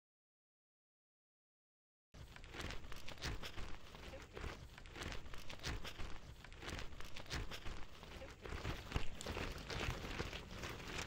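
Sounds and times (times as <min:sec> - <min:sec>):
nylon fabric rustling: 0:02.2 - 0:11.0.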